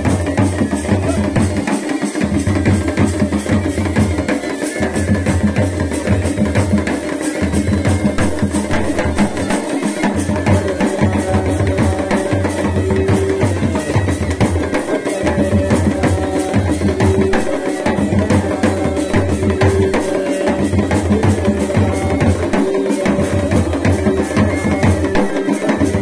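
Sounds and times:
drum beating fast rhythm: 0.0 - 26.0
bagpipe melody over drone: 6.7 - 26.0.

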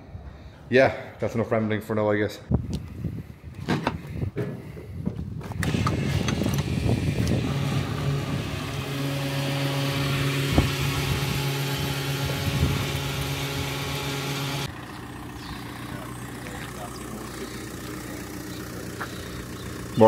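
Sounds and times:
fuel pump motor hum: 4.4 - 20.0.

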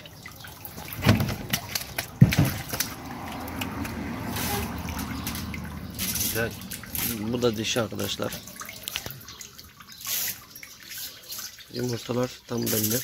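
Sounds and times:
water splashing and dripping: 0.0 - 13.0
water trickling: 0.0 - 13.0
dull knocks: 1.0 - 2.8.

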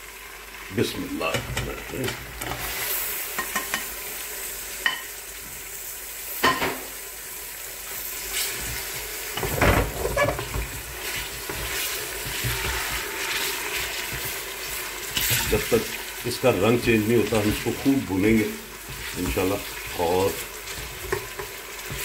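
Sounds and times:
meat sizzling in hot oil: 0.0 - 22.0
spatula scraping a pot: 9.4 - 16.1, 18.7 - 22.0.

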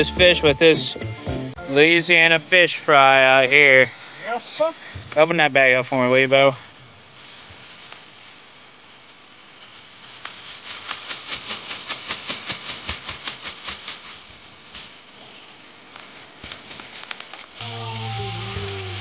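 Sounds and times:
steady hiss: 2.2 - 19.0.

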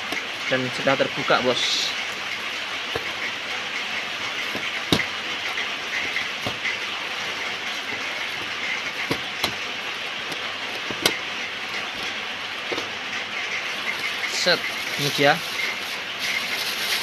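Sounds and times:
plastic bag crinkling: 13.6 - 17.0.

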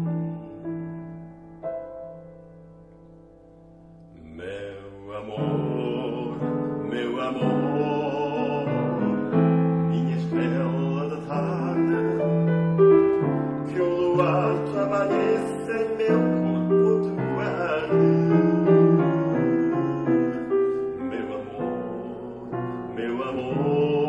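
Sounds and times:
piano accompaniment: 0.0 - 24.0
man singing with vibrato: 4.1 - 24.0.

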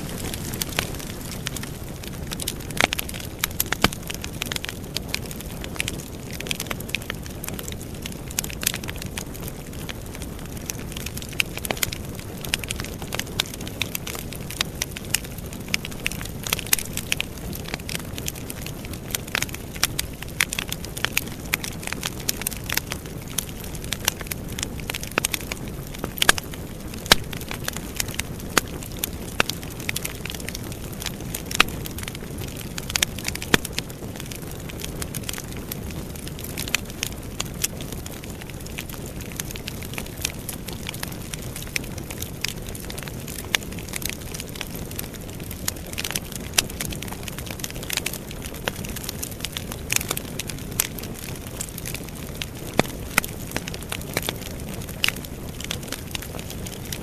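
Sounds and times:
low rush of flame: 0.0 - 6.6
burning logs crackling and popping: 0.0 - 57.0.

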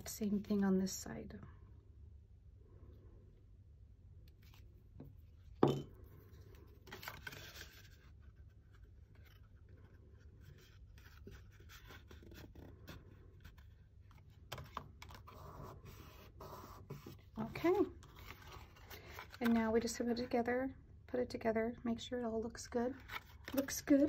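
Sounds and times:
paper rustling: 6.5 - 19.6.

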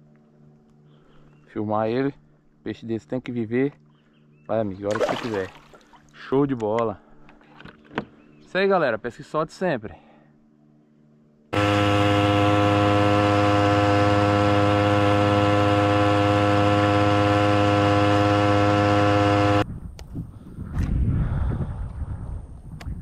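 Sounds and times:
water at the shore: 4.8 - 6.4
outboard motor droning: 10.4 - 19.6
wind on microphone: 19.6 - 23.0.

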